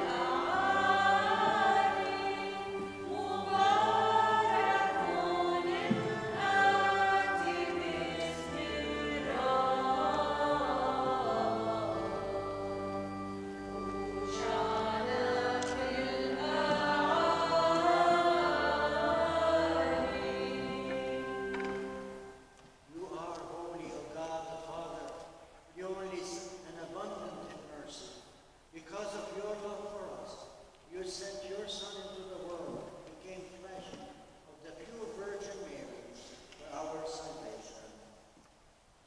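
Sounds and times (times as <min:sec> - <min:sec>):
slow chant singing: 0:00.0 - 0:23.0.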